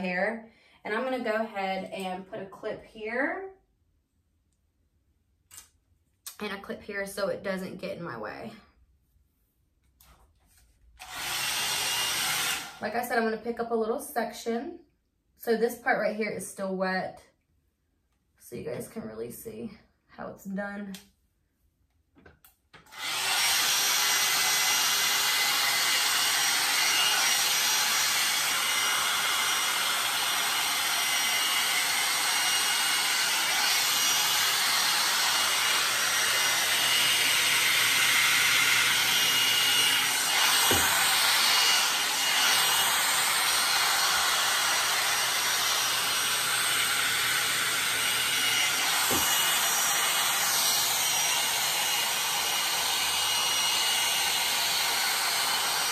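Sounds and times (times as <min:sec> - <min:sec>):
hot-air dryer brush blowing air: 0:11.0 - 0:13.4, 0:22.8 - 0:55.9.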